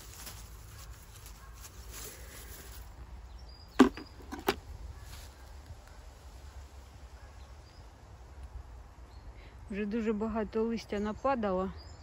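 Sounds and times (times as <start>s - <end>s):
faint outdoor background: 0.0s - 12.0s.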